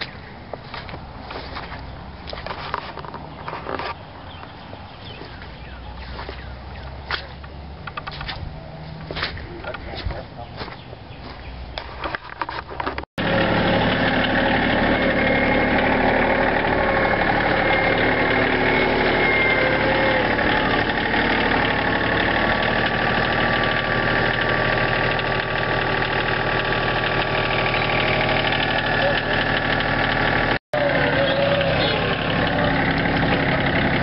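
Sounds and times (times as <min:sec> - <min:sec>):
tractor engine running: 0:00.0 - 0:34.0
clicks and handling noise: 0:07.2 - 0:10.8, 0:11.8 - 0:13.1.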